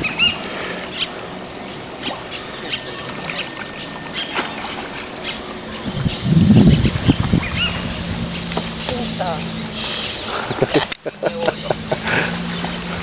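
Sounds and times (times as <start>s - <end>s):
light water splashes: 0.0s - 13.0s
small waves lapping: 0.0s - 13.0s
low rumbling microphone burst: 5.8s - 10.5s.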